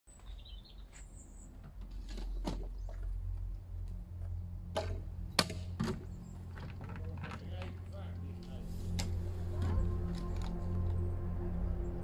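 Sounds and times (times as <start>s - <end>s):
steady low hum: 2.7s - 12.0s.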